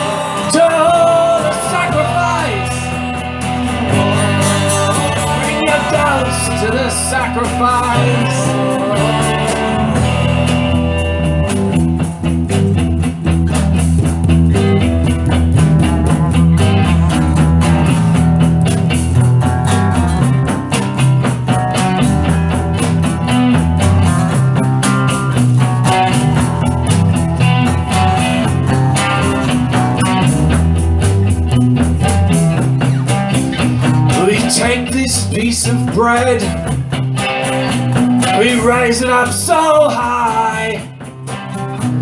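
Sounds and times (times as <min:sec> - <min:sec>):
rock guitar instrumental: 0:00.0 - 0:42.0.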